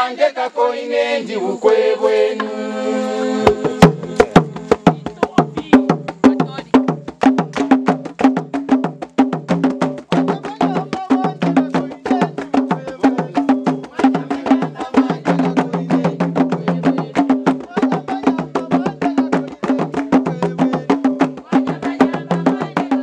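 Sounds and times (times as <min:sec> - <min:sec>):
fast drum strokes: 0:03.2 - 0:23.0
low two-note drum pattern: 0:03.4 - 0:21.2.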